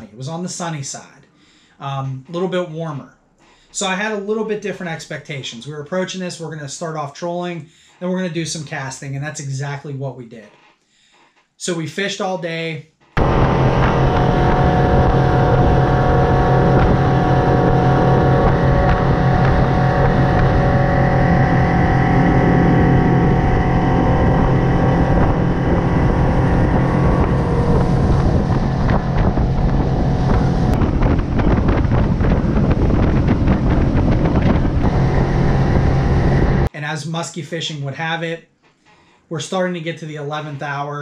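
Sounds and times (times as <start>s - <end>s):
outboard motor running: 13.2s - 36.7s
wind buffeting microphone: 13.2s - 36.7s.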